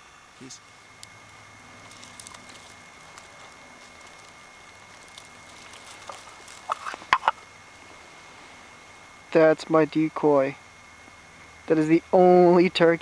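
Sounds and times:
turkey call clucks: 6.6 - 7.5.

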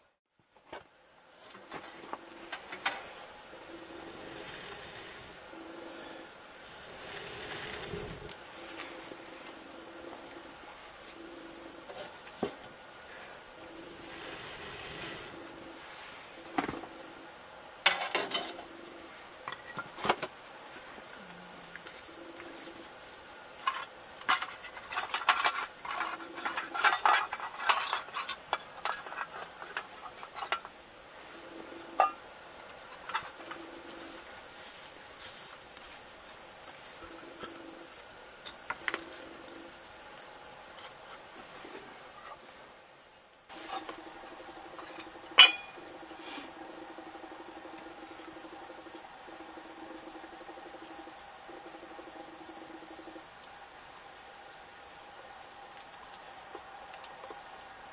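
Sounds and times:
metal clinking and scraping: 17.8 - 18.7, 23.6 - 30.8, 44.7 - 45.9.

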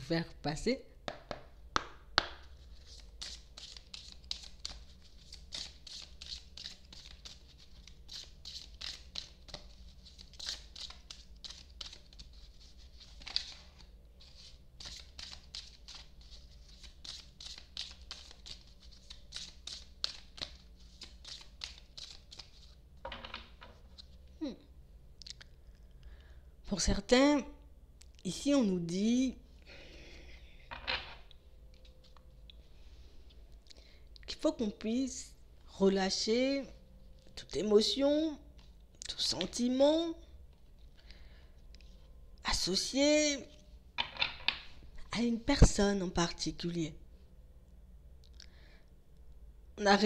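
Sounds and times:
cards being shuffled: 1.1 - 24.1.

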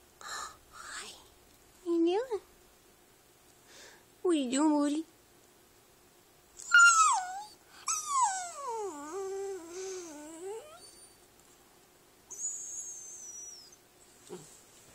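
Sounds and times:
puppy yowling and howling: 6.6 - 11.2.

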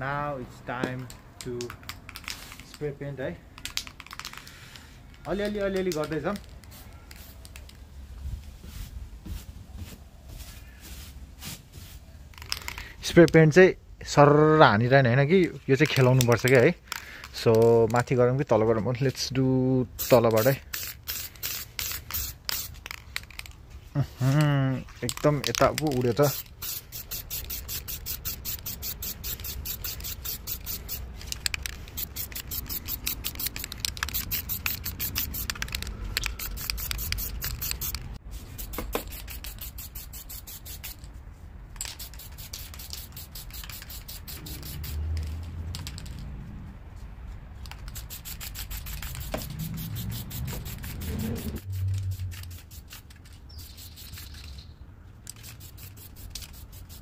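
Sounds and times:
spray can rattling: 1.0 - 2.9, 3.5 - 4.6, 5.2 - 7.8, 12.3 - 13.4, 15.5 - 18.2, 19.9 - 23.6, 24.2 - 46.3, 47.6 - 57.0
spray paint hissing: 5.4 - 7.8, 19.9 - 23.5, 25.0 - 41.1, 41.8 - 46.2, 47.6 - 57.0.

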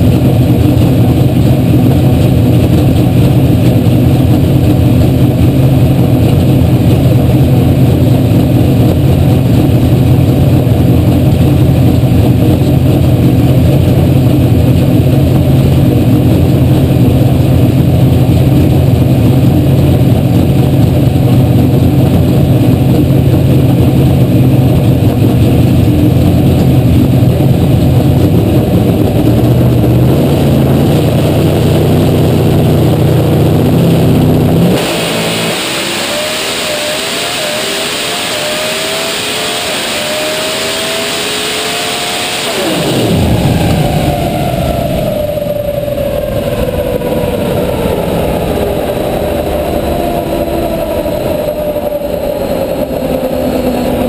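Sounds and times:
race car engine high idle: 0.0 - 34.7.

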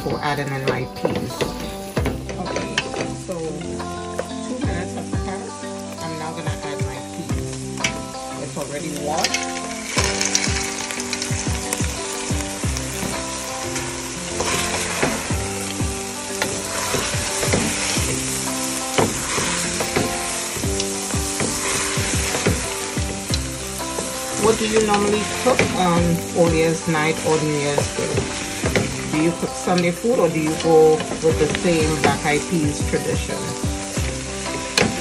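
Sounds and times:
irregular knocks: 0.0 - 3.2, 27.8 - 29.9
food sizzling in butter: 0.0 - 35.0.

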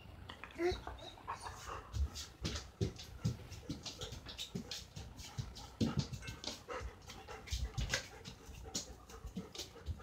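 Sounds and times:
dog panting: 0.6 - 10.0.

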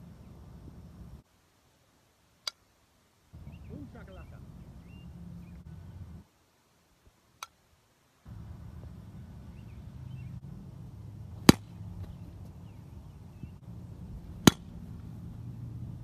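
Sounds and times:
low background rumble: 3.4 - 6.3, 8.3 - 16.0
bat hitting softball: 11.3 - 12.6, 14.2 - 15.3.

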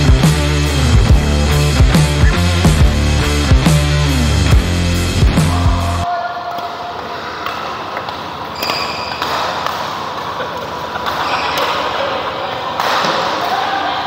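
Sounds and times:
sports hall noise: 0.0 - 14.0
racket hitting shuttlecock: 6.5 - 12.1.

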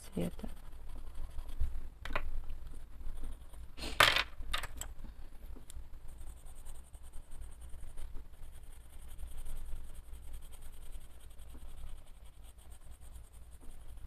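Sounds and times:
pencil scratching on paper: 0.0 - 4.0, 5.8 - 14.0
pencils clicking and clattering: 3.8 - 5.0.

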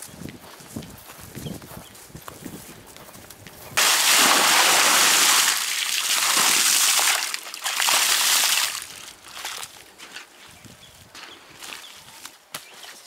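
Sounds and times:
water splashing onto earth: 3.8 - 9.7.

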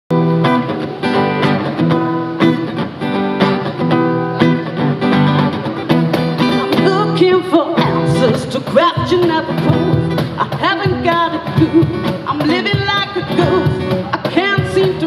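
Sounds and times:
acoustic guitar strumming chords: 0.1 - 15.0
woman singing: 6.7 - 15.0.

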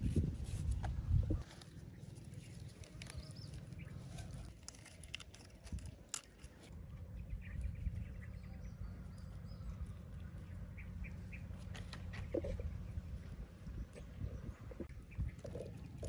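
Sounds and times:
low steady rumble: 0.0 - 16.0
hands handling food: 0.4 - 6.7.

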